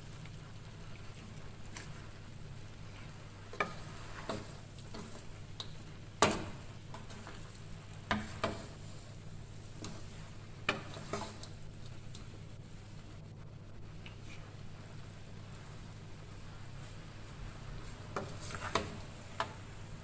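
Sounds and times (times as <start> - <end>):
food scraping in a wok: 1.3 - 12.1, 18.0 - 19.7.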